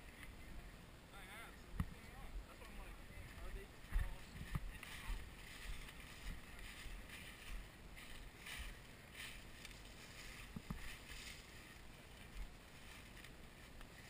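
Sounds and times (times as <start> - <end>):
footsteps crunching dry leaves: 3.2 - 14.0.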